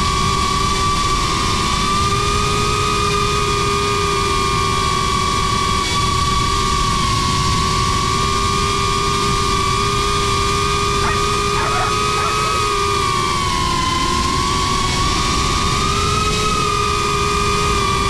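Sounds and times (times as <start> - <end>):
drone propellers whining: 11.0 - 13.2.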